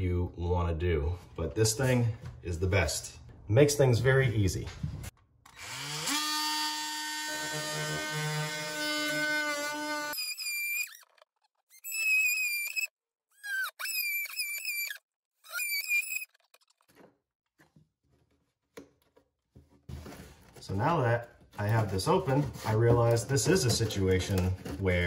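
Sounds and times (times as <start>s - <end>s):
oscillating multi-tool buzzing: 5.5s - 16.7s
blade rasping into plywood: 5.6s - 17.7s.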